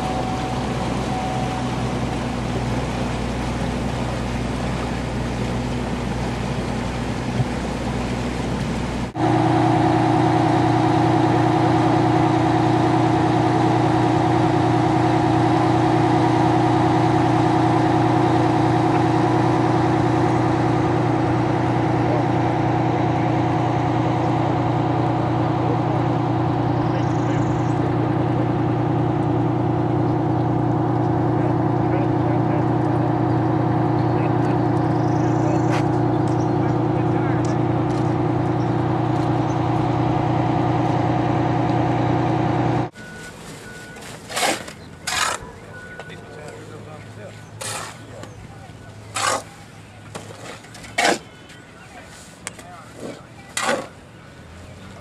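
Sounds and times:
rushing wash of water: 0.0s - 26.8s
engine idling hum: 0.0s - 55.0s
engine running: 0.0s - 55.0s.

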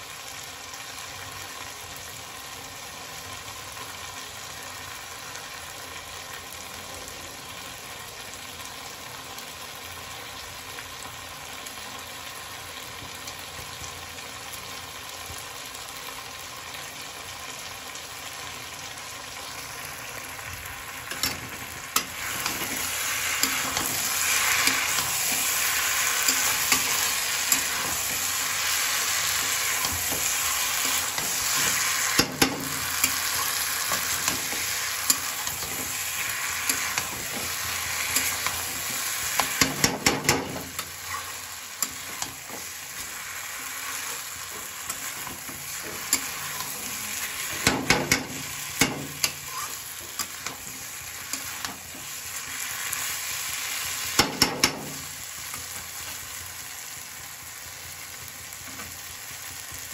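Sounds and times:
vegetables sizzling in oil: 0.0s - 59.9s
metal spatula scraping pan: 21.1s - 52.1s.

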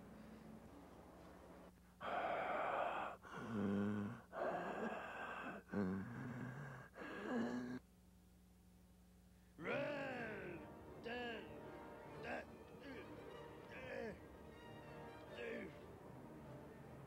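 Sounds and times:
person growling like a monster: 2.0s - 7.8s.

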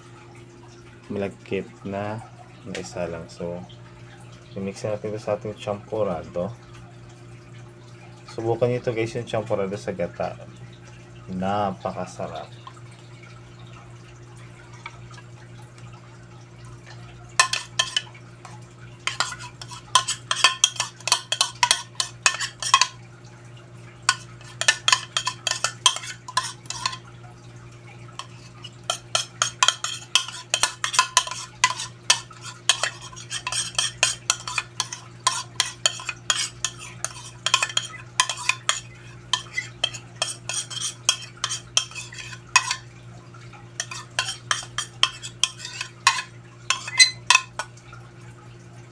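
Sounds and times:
spoon scraping plastic bowl: 17.4s - 18.1s, 19.0s - 23.0s, 24.1s - 27.0s, 28.2s - 42.9s, 43.8s - 47.7s.

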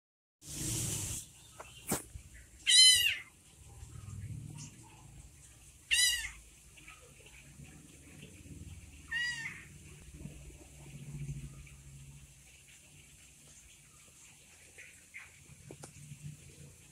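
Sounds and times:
kitten meowing: 2.6s - 3.3s, 5.9s - 6.4s, 9.1s - 9.7s.

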